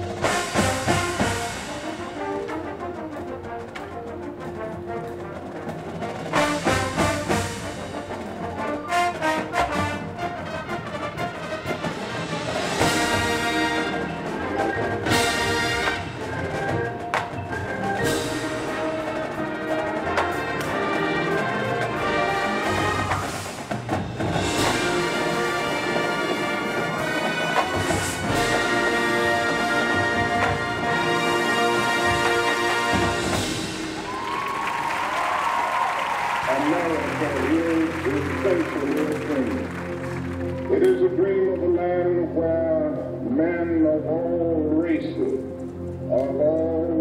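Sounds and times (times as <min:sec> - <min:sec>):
loud full-band chords: 0:00.0 - 0:35.5
marching band playing: 0:00.0 - 0:46.1.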